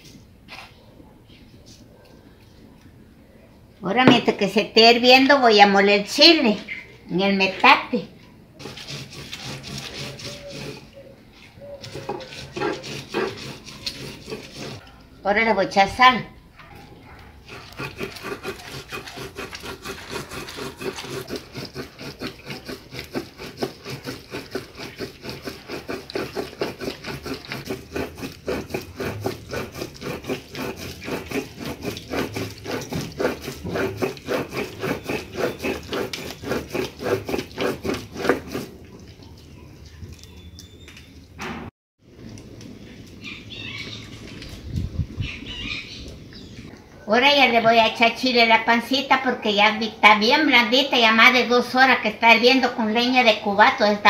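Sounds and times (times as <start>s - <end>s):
stone grinding on stone: 4.0s - 4.3s, 8.6s - 14.9s, 17.4s - 38.8s.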